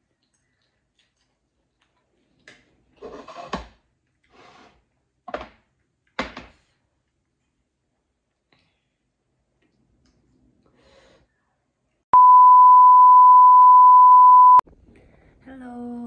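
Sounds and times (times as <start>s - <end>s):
slurping and chewing: 0.0s - 3.0s.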